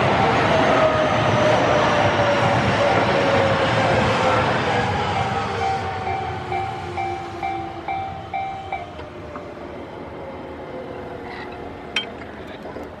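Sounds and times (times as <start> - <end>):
electric train running: 0.0 - 10.5
level crossing bell dinging: 6.1 - 8.9.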